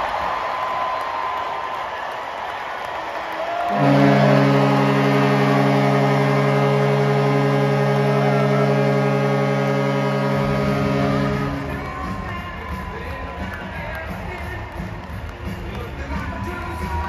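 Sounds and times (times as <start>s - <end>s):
crowd noise: 0.0s - 17.0s
arena horn blast: 3.6s - 12.8s.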